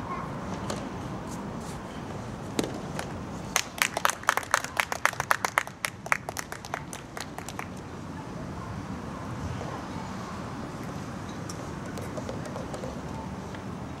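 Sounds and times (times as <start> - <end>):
people clapping: 3.6 - 7.8.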